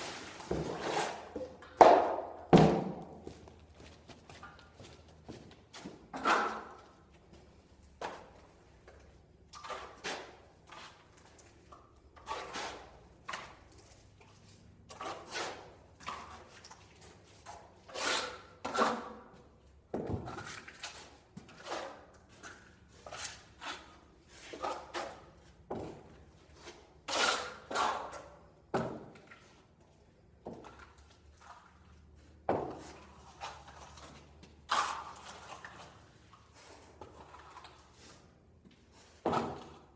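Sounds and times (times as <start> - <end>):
trowel scraping plaster: 0.0 - 1.6, 6.1 - 6.9, 9.5 - 11.4, 12.1 - 13.6, 14.8 - 19.5, 20.3 - 28.4, 32.6 - 38.3.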